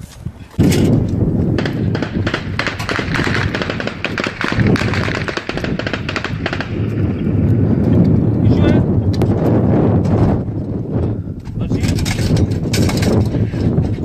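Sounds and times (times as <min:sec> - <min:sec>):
rocket motor crackling rush: 0:01.6 - 0:07.2.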